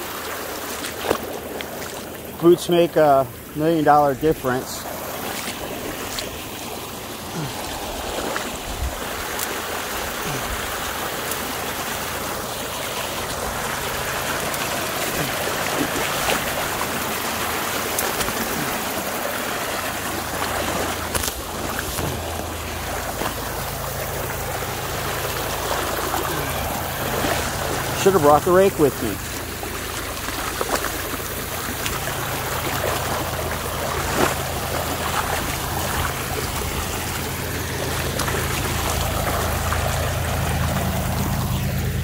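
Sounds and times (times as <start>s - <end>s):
water rushing from a pipe: 0.0s - 42.0s.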